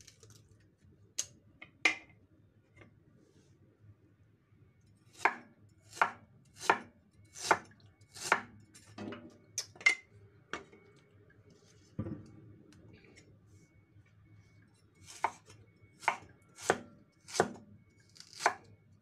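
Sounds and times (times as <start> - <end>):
dull thump: 12.0 - 12.3.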